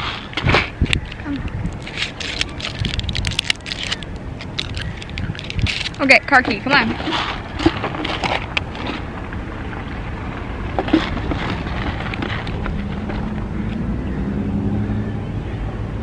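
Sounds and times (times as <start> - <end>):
hands rummaging through handbag: 1.0 - 9.1, 10.8 - 13.2
car engine low hum: 7.4 - 16.0.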